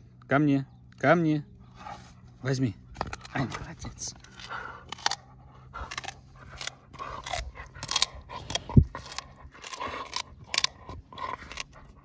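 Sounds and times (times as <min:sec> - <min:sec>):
dog chewing wooden stick: 0:02.9 - 0:12.0
wood cracking and splintering: 0:05.9 - 0:10.7.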